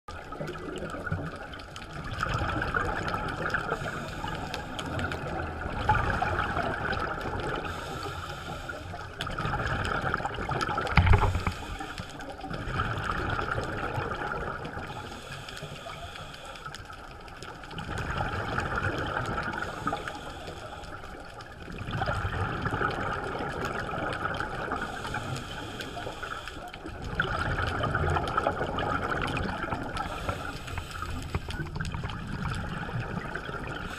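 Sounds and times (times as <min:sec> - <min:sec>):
gurgling exhaled bubbles: 0:00.1 - 0:33.9
diver breathing through regulator: 0:03.6 - 0:05.3, 0:07.6 - 0:09.2, 0:11.0 - 0:12.6, 0:14.8 - 0:16.9, 0:19.5 - 0:21.3, 0:24.7 - 0:26.9, 0:30.0 - 0:31.7.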